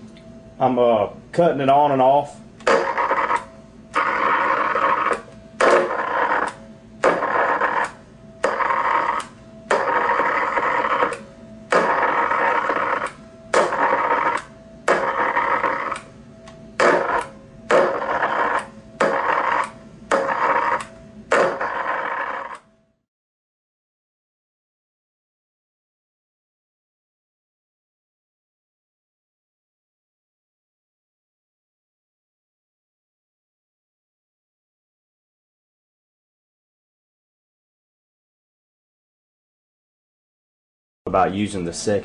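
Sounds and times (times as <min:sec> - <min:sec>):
electrical arcing buzz: 0:02.6 - 0:22.7.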